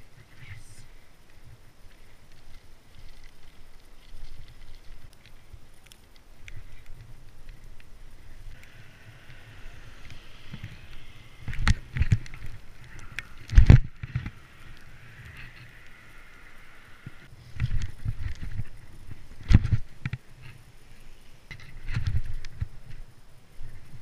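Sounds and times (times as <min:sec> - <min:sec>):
tyre and wind noise: 0:00.0 - 0:24.0
steady whirr: 0:06.4 - 0:18.8.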